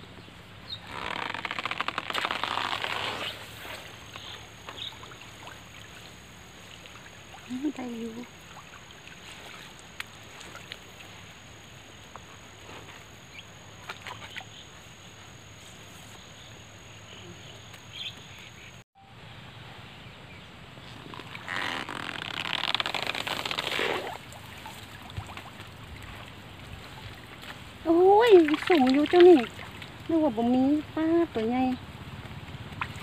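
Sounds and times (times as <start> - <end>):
water splashing and pouring: 2.2 - 11.3, 22.8 - 30.1.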